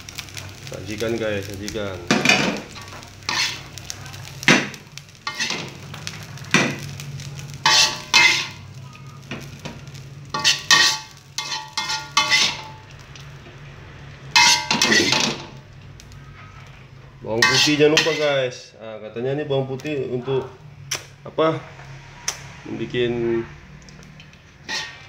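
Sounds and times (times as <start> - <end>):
metal spatula clanking on pan: 2.1 - 3.6, 4.5 - 5.7, 7.6 - 8.6, 10.3 - 12.8, 14.4 - 15.5, 17.4 - 18.4, 24.2 - 25.0.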